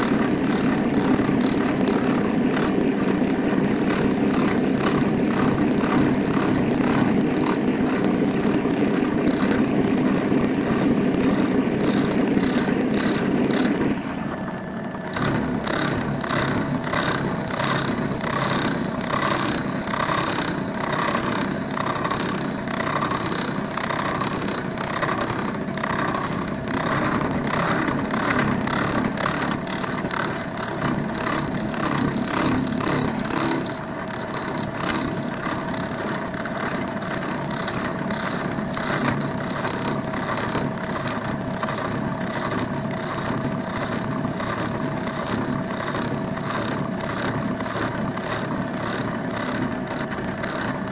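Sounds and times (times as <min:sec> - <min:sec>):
milling machine whine: 0:00.0 - 0:50.9
fly-cutter pulsing cut: 0:15.2 - 0:50.9.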